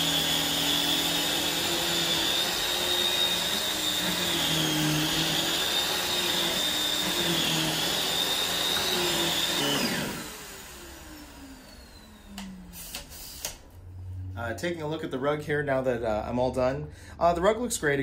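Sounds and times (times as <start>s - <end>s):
vacuum motor spinning down: 0.0s - 12.8s
vacuum cleaner running: 0.0s - 13.5s.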